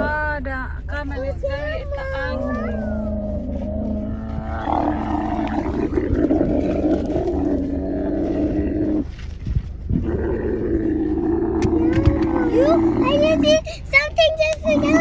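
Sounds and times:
camel bellowing: 1.8 - 9.3, 9.9 - 13.5, 14.6 - 15.0.

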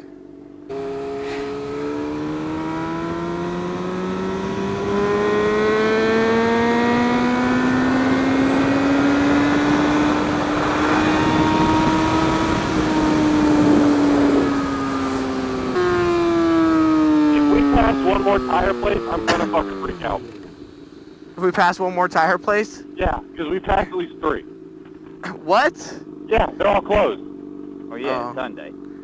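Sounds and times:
motorcycle engine accelerating: 0.0 - 21.4, 22.8 - 29.0
wind rushing over microphone: 7.7 - 16.8.

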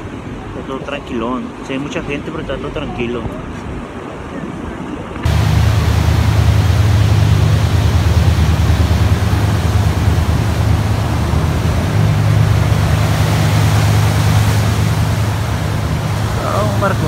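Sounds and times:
constant low rumble: 0.0 - 17.0
ocean surf breaking: 0.0 - 17.0.

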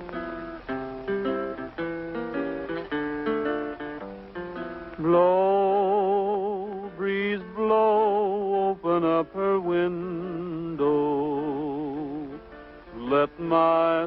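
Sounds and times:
guitar: 0.0 - 14.0
man singing: 5.0 - 14.0.

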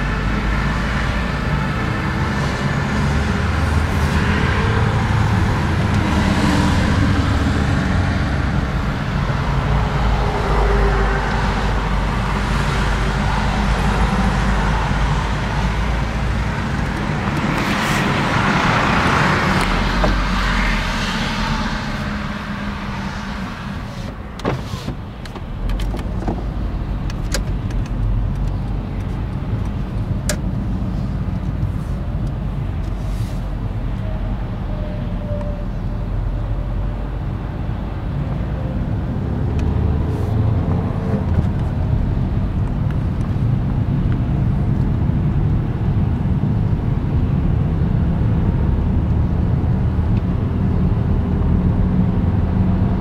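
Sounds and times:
fire engine passing: 0.0 - 24.2
engine rumble and road noise: 0.0 - 53.0.

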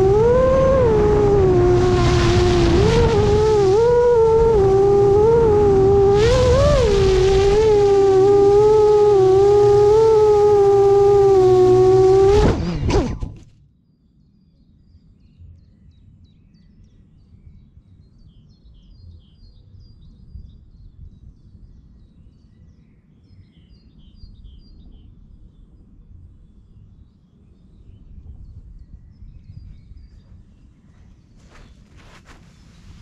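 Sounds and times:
drone motors whining: 0.0 - 13.5
faint wind rumble: 0.0 - 13.5, 14.9 - 33.0.

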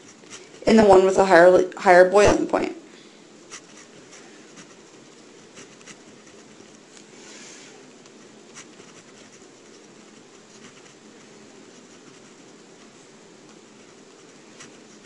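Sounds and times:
steady low hiss: 0.0 - 15.0
pen scratching on paper: 3.5 - 6.8, 8.1 - 12.9, 13.5 - 15.0.

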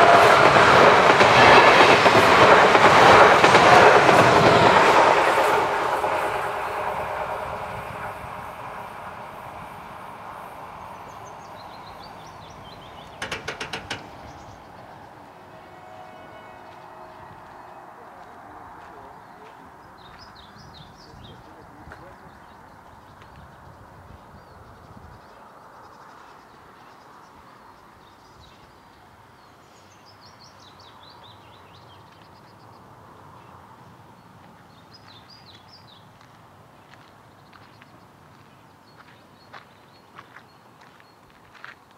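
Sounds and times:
train passing: 0.0 - 28.0
songbird singing: 0.5 - 41.4.

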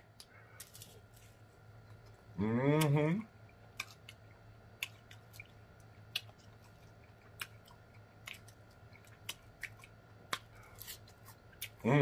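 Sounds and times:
close chewing: 3.7 - 11.9.

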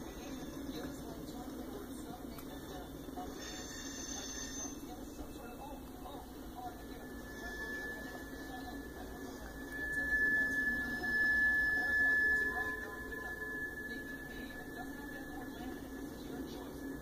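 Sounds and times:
train wheels squealing on rail: 3.4 - 5.0, 6.8 - 17.0.

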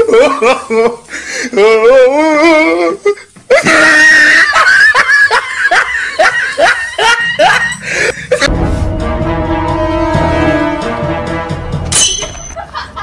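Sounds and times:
music track: 7.4 - 12.6.

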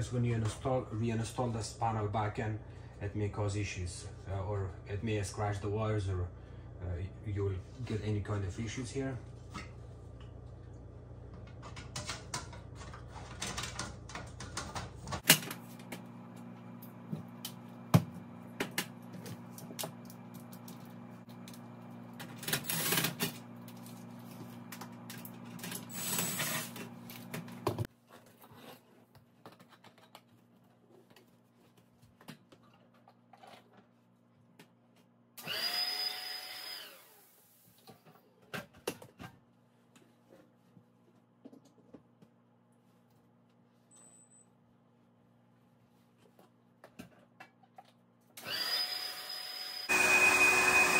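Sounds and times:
steady low hum: 0.0 - 27.9
cordless drill-driver running: 35.4 - 37.5, 48.4 - 50.9.

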